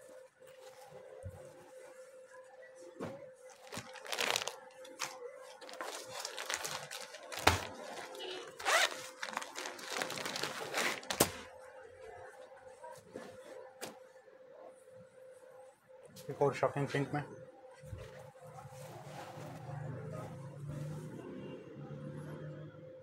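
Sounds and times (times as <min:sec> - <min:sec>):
cloth unfolding: 0:03.0 - 0:11.5
plastic packaging crinkling: 0:03.5 - 0:11.5.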